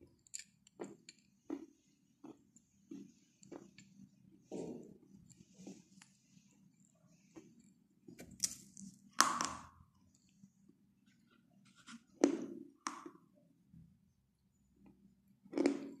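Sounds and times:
quiet chewing: 0.0s - 9.0s.

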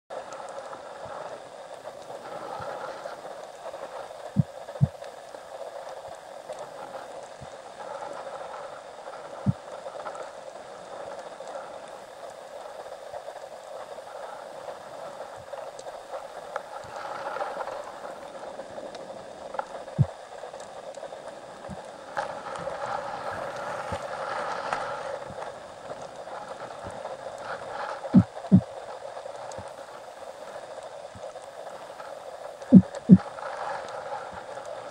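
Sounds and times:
muffled underwater rushing hiss: 0.1s - 34.9s.

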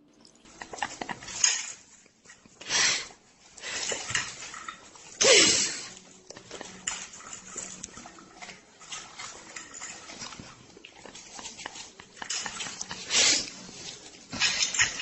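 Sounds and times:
dog chewing and smacking: 5.9s - 15.0s.

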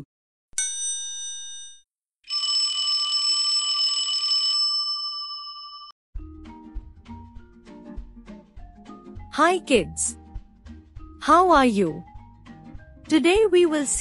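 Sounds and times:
bell ringing: 0.6s - 5.9s.

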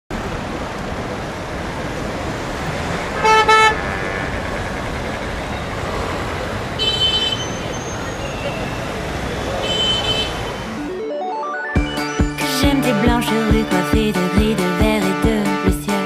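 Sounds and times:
street traffic noise: 0.1s - 16.0s
higher-pitched horn honk: 3.2s - 3.9s
car horn toots: 3.2s - 4.3s, 6.8s - 7.6s, 9.6s - 10.8s.

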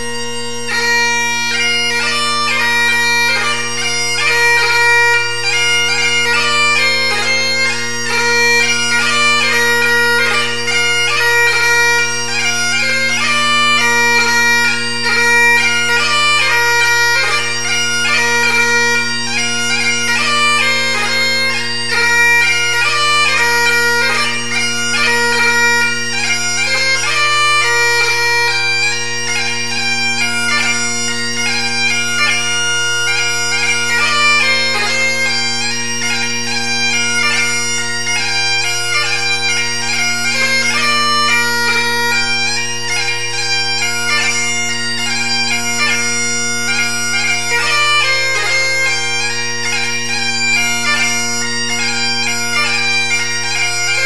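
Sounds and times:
bagpipe drones: 0.0s - 54.0s
bagpipe tune: 0.0s - 54.0s.

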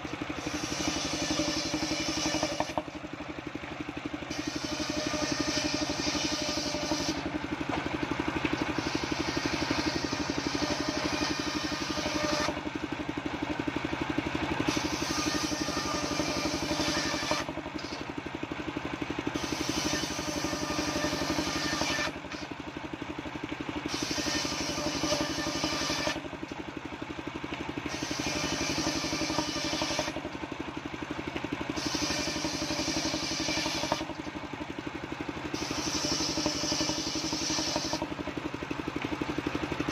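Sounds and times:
circular saw blade cutting wood: 0.0s - 13.4s, 14.5s - 18.3s, 19.2s - 22.7s, 23.8s - 26.7s, 27.5s - 39.1s
engine running steadily: 0.0s - 39.9s.

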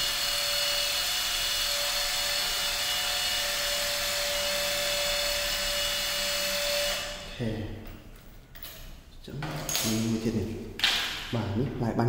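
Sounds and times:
impact driver motor whine: 0.0s - 7.4s.

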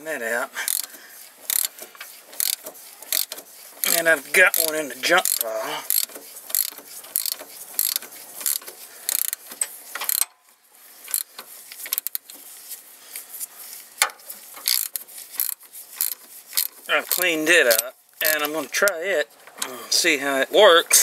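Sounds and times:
ratchet wrench clicking: 0.7s - 1.8s, 2.4s - 10.3s, 11.1s - 12.3s, 14.6s - 18.6s.

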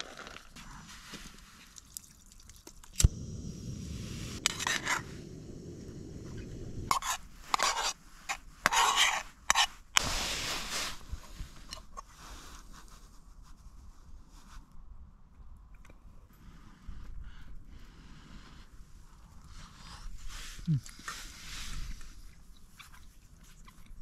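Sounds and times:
low steady rumble: 3.0s - 7.5s
metal spoon scraping metal pot: 6.9s - 9.7s.

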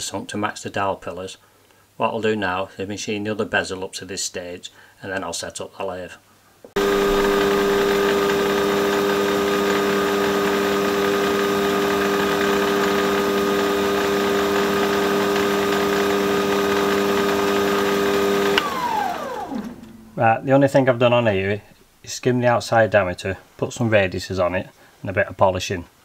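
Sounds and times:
metal lathe humming and whirring: 6.8s - 20.2s.

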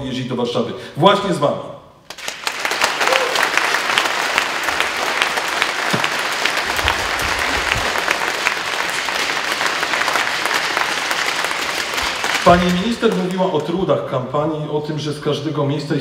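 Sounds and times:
crowd applauding: 2.1s - 14.0s.

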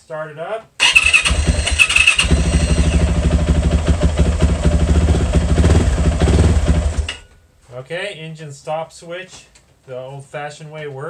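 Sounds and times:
electric starter cranking: 0.8s - 3.3s
motorcycle engine idling: 0.9s - 7.2s.

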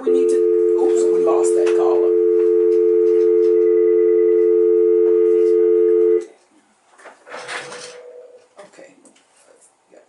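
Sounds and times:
telephone dial tone: 0.0s - 6.2s.

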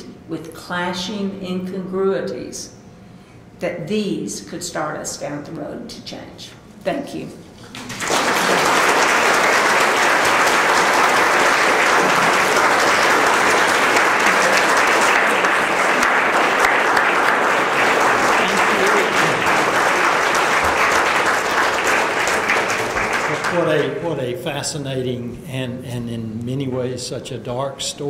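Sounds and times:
audience applauding: 7.6s - 24.2s.

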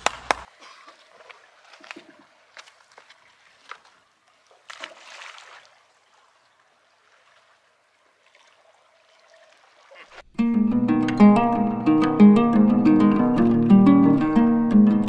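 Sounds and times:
water lapping among rocks: 0.5s - 10.3s
water splash: 0.8s - 5.9s.

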